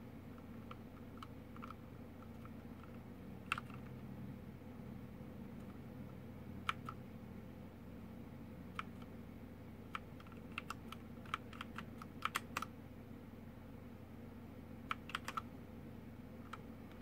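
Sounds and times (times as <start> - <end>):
mechanical keyboard key clicks: 6.6 - 7.0, 9.9 - 12.7, 14.9 - 15.4.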